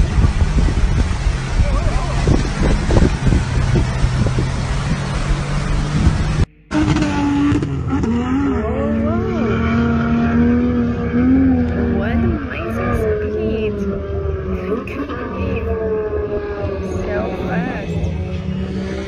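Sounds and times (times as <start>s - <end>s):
rushing floodwater: 0.0s - 6.5s
off-road vehicle engine revving high: 0.0s - 19.0s.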